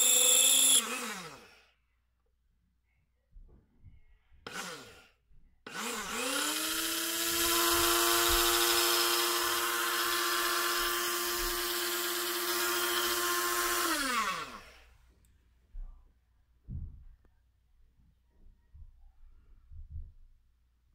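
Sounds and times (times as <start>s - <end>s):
grinder motor whining: 0.0s - 1.6s, 4.5s - 5.0s, 5.7s - 14.8s.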